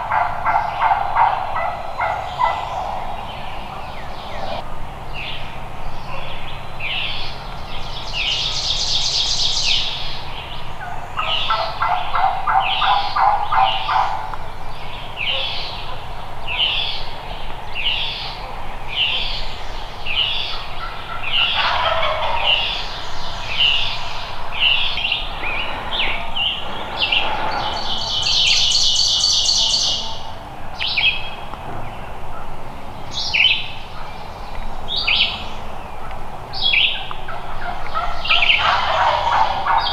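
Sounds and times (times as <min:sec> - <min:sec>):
birds buzzy trills: 0:00.0 - 0:39.9
rapid rattling bird call: 0:19.0 - 0:30.4.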